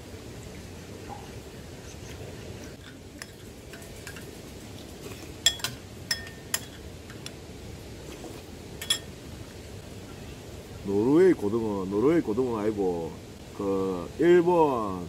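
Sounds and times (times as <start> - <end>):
metal utensils clinking: 2.7 - 4.3, 5.4 - 7.2, 8.8 - 9.1.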